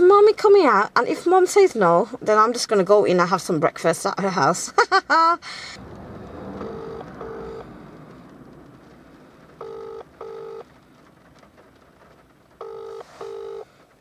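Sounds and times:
telephone ringback tone: 9.6s - 10.6s, 12.6s - 13.7s.

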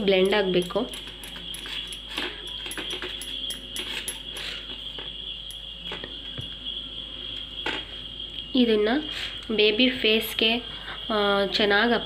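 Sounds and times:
high-pitched whine: 0.0s - 12.0s
fingers scraping steel bowl: 0.6s - 4.5s.

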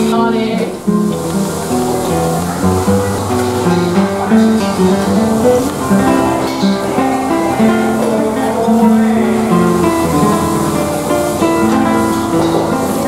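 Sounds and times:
acoustic guitar playing: 0.0s - 13.0s.

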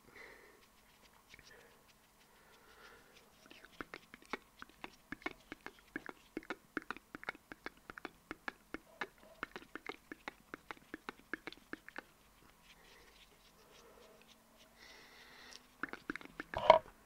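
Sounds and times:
wet mouth clicks and pops: 3.6s - 12.1s, 15.5s - 16.8s.

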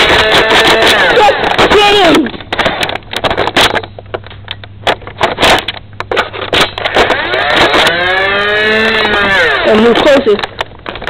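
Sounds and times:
toy blaster flywheels whining: 0.0s - 2.0s, 6.8s - 10.5s.

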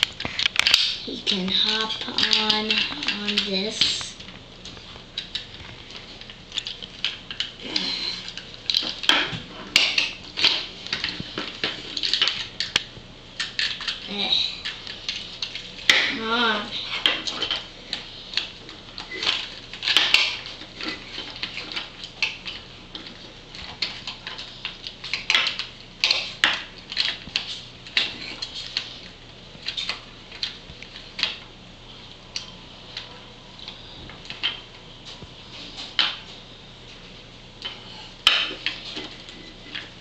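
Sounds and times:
plastic toys clicking and knocking: 0.0s - 4.0s, 13.4s - 28.8s.

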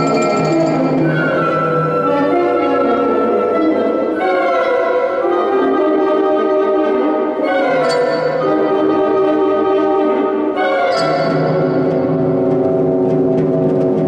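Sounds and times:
percussion ensemble: 0.0s - 4.2s, 7.4s - 14.0s
woodwind quintet playing: 0.0s - 13.2s.

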